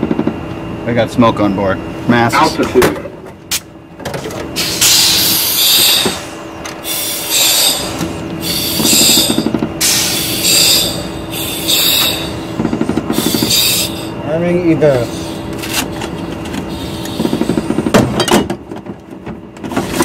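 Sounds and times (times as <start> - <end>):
oxygen masks hissing: 4.6 - 14.2, 14.9 - 17.9.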